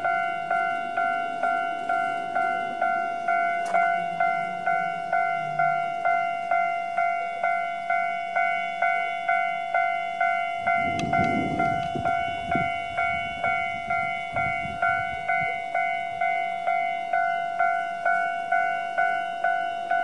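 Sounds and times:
low rumble: 0.0 - 7.4
level crossing bell ringing: 0.0 - 20.0.

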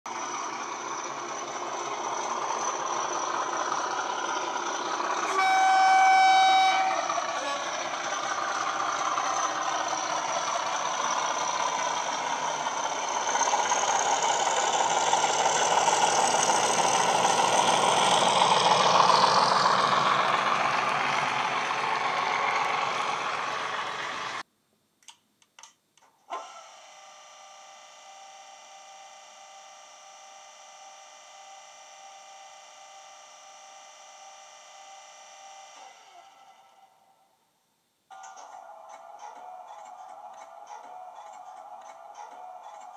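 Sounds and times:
model diesel engine sound: 0.1 - 24.4, 26.3 - 37.1, 38.1 - 42.9
locomotive horn blast: 5.2 - 8.8.

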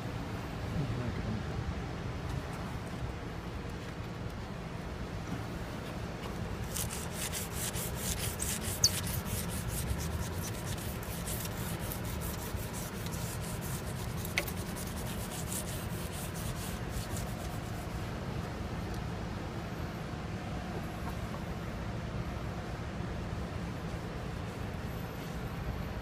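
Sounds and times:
steady low hum: 0.0 - 26.0
rag wiping metal rail: 6.6 - 18.0.

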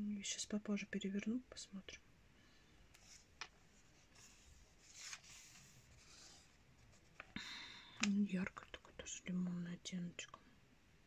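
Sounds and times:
magazine pages rustling: 3.0 - 7.4.

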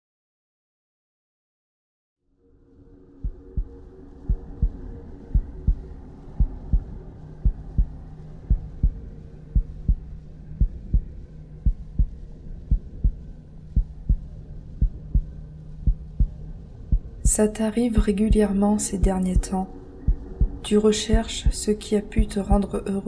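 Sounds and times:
low steady drone: 2.3 - 23.0
heartbeat thumps: 4.3 - 5.8, 10.6 - 13.2, 13.8 - 14.2, 14.8 - 17.4, 18.0 - 21.6.

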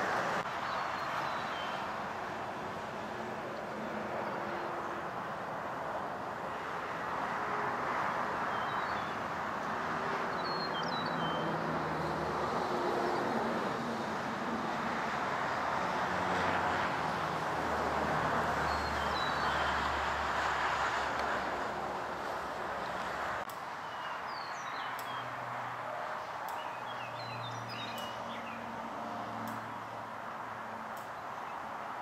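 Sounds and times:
hiss-like outdoor rush: 0.0 - 32.0
high bird chirps: 0.6 - 1.8.

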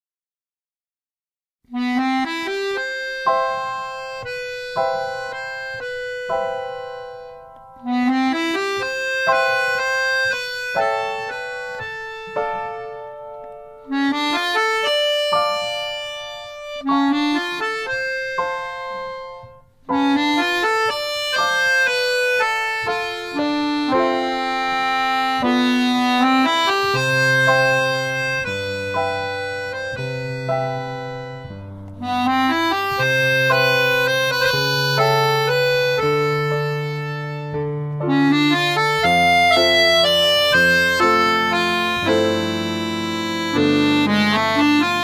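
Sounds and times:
instrumental background music: 1.7 - 45.0
low bass notes: 13.9 - 45.0.

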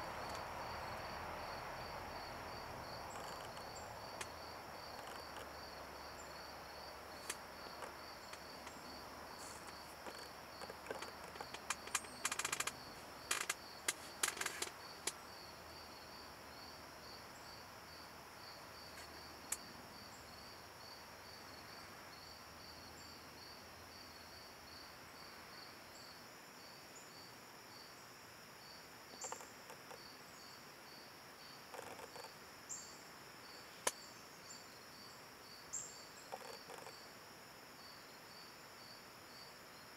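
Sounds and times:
insect chorus pulsing: 0.0 - 28.0, 28.6 - 39.9
sharp clicks and knocks: 9.6 - 15.2.

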